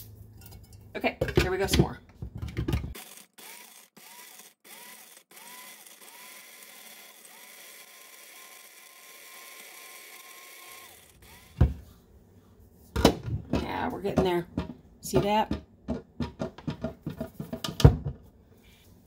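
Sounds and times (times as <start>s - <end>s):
blade coffee grinder whining: 3.0s - 11.8s.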